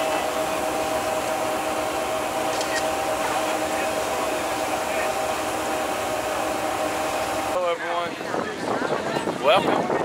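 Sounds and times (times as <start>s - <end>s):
mechanical rushing drone: 0.0s - 7.6s
constant hum: 0.0s - 8.6s.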